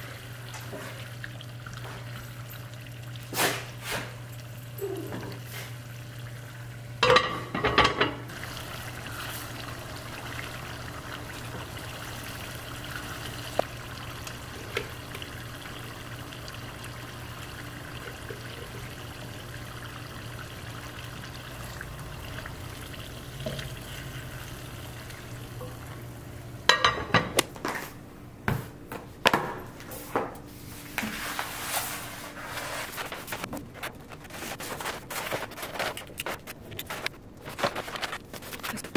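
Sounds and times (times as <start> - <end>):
sauce simmering in a pan: 0.0 - 4.6, 8.3 - 26.6
paper crinkling and rustling: 30.8 - 38.9.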